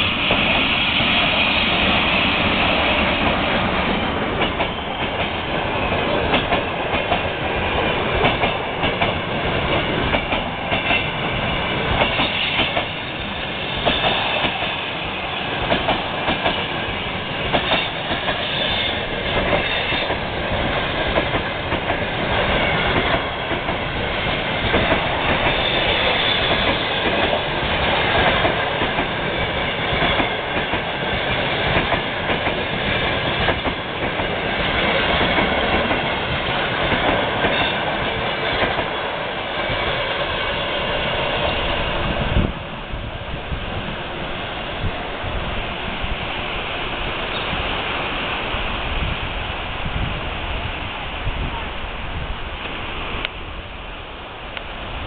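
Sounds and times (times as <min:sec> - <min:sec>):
train wheels clattering over rails: 0:00.0 - 0:42.7.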